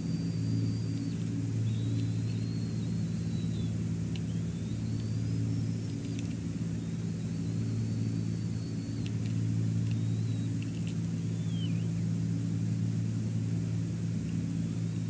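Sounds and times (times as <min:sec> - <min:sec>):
low mechanical hum: 0:00.0 - 0:15.0
faint clicks: 0:04.1 - 0:04.4, 0:05.8 - 0:06.4, 0:09.0 - 0:11.0.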